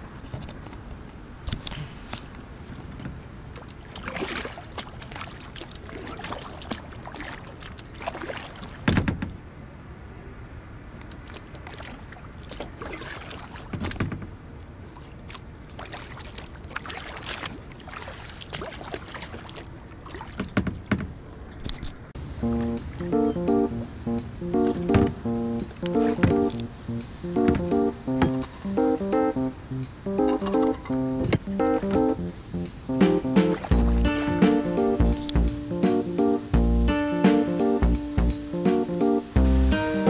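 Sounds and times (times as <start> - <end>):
paddle splashing in water: 1.8 - 9.2, 11.2 - 36.5
sharp knocks: 24.8 - 25.2, 27.4 - 28.5.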